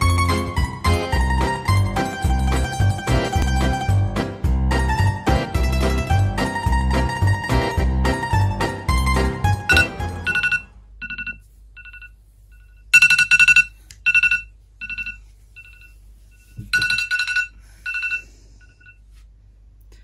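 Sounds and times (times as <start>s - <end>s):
phone alarm beeping: 9.7s - 19.0s.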